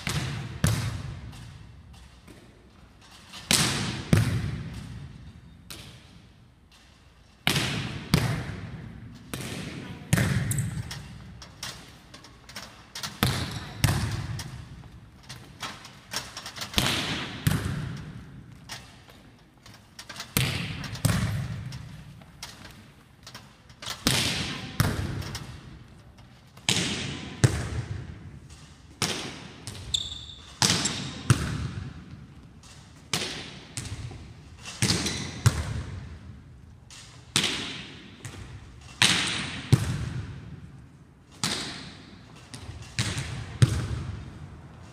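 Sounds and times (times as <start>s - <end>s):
volleyball smacks echoing: 7.4s - 10.8s.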